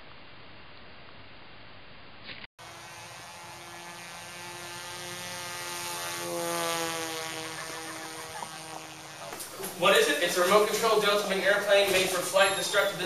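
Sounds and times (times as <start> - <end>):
model airplane motor whine: 2.6 - 13.0.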